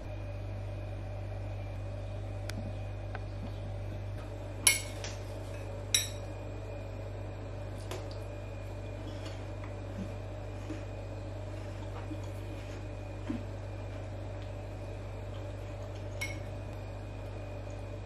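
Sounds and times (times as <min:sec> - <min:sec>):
steady low hum: 0:00.0 - 0:18.0
metal spoon clinking on glass bowl: 0:05.9 - 0:06.2.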